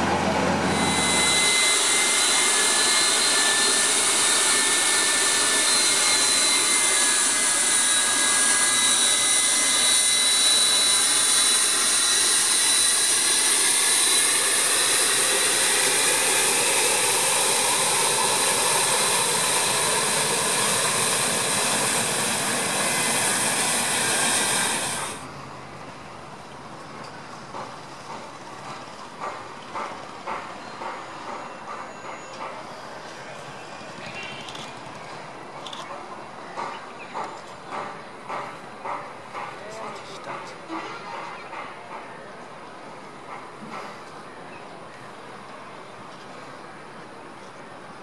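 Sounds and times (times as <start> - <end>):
high turbine whistle: 0.0 - 25.4
jet engine rush: 0.0 - 25.4.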